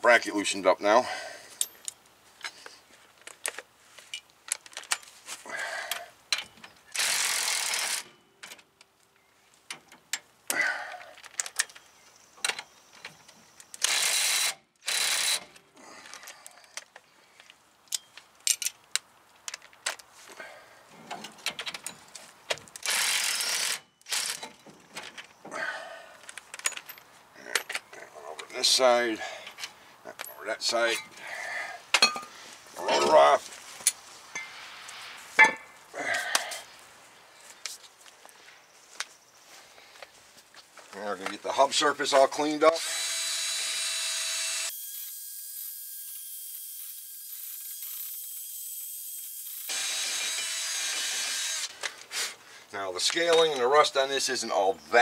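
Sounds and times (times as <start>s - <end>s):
steel tools clinking: 32.0s - 34.6s.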